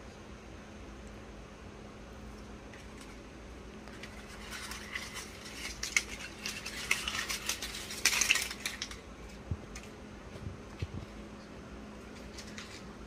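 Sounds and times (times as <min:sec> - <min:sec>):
paper banknotes rustling: 0:02.7 - 0:11.3, 0:12.0 - 0:13.0.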